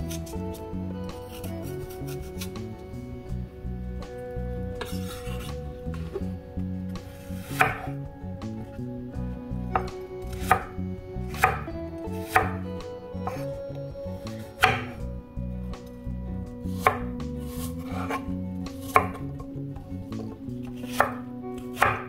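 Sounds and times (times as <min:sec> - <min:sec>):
knife chopping on wooden board: 0:01.2 - 0:02.3, 0:04.8 - 0:06.2, 0:07.0 - 0:08.0, 0:09.7 - 0:12.6, 0:13.2 - 0:13.5, 0:14.6 - 0:15.0, 0:16.8 - 0:19.4, 0:20.2 - 0:22.0.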